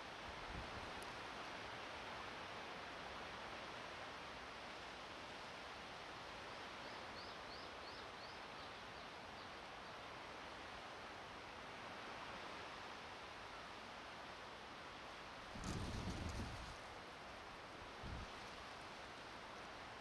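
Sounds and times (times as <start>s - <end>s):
wind noise: 15.5s - 16.8s, 17.9s - 18.5s.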